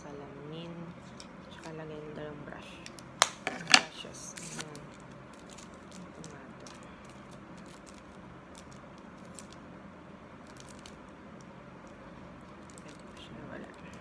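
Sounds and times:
steady low hum: 0:00.0 - 0:14.0
plastic packaging clicks and rustles: 0:02.7 - 0:09.6, 0:10.4 - 0:14.0.

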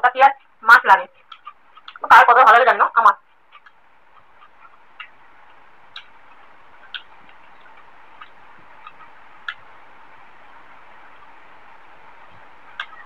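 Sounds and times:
steady hiss: 0:00.0 - 0:13.0
wet chewing clicks: 0:01.2 - 0:02.1, 0:03.3 - 0:09.7, 0:12.8 - 0:13.0.

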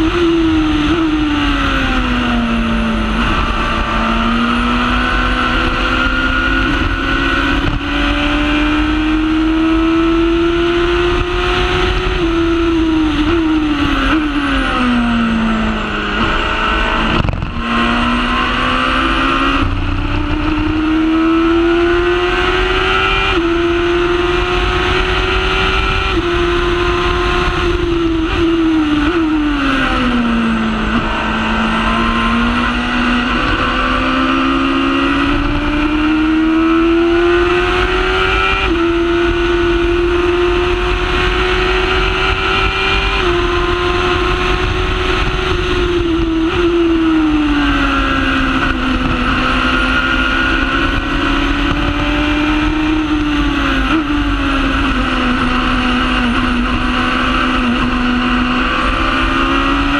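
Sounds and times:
racing car engine revving: 0:00.0 - 0:59.9
wind noise: 0:00.0 - 0:59.9.

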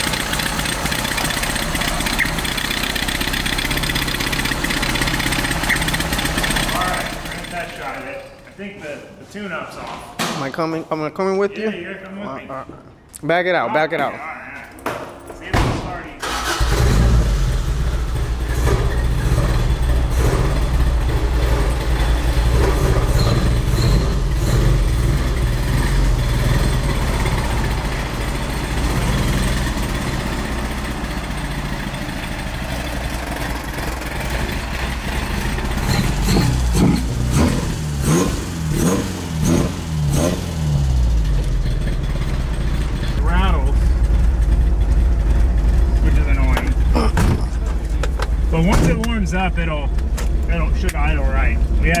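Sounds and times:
engine revving: 0:00.0 - 0:08.0, 0:16.2 - 0:47.0
car engine running: 0:00.0 - 0:08.4, 0:16.2 - 0:52.0.

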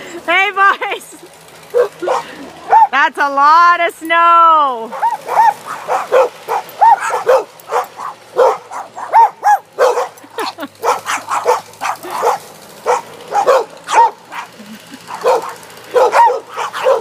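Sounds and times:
dogs barking rapidly: 0:01.6 - 0:03.0, 0:04.9 - 0:17.0.

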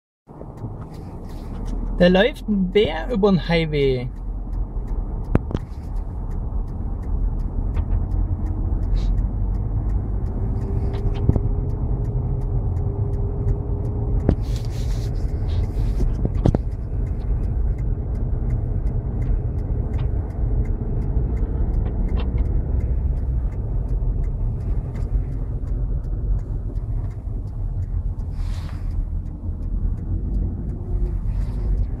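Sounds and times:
car engine running: 0:00.3 - 0:32.0
road rumble: 0:00.3 - 0:32.0.

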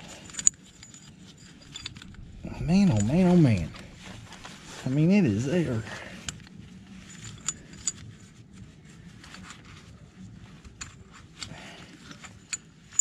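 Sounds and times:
metallic clinks of chain links: 0:00.0 - 0:03.9.

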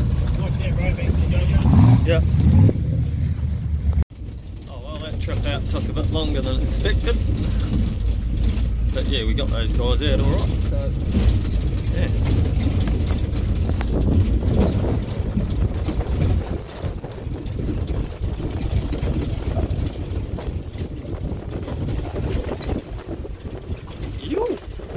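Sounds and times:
wind buffeting microphone: 0:00.0 - 0:24.9
fast regular ticking: 0:04.1 - 0:22.6.

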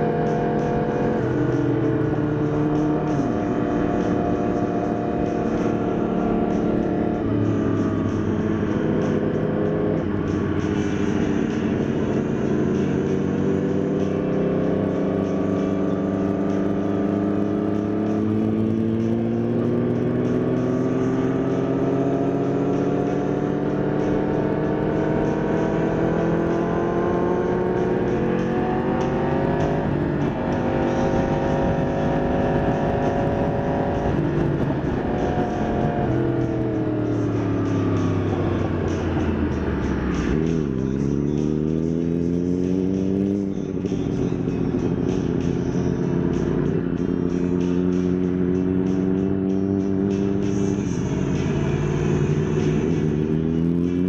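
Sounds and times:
motorcycle engine running: 0:00.0 - 0:54.0
wind noise on microphone: 0:32.5 - 0:36.3.

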